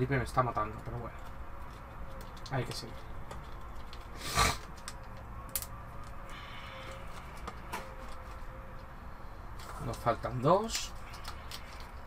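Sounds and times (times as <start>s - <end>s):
packaging rustle: 1.2s - 8.9s.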